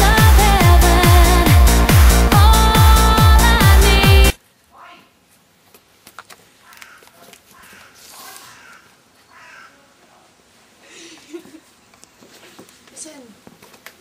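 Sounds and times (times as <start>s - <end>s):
electronic dance music: 0.0s - 4.4s
crows cawing: 6.6s - 10.1s.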